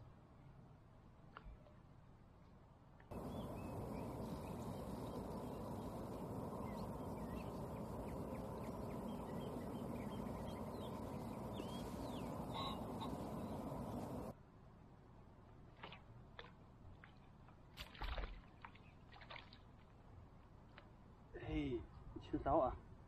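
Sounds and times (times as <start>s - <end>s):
outdoor background noise: 0.0s - 23.0s
bird chirps: 3.1s - 14.3s.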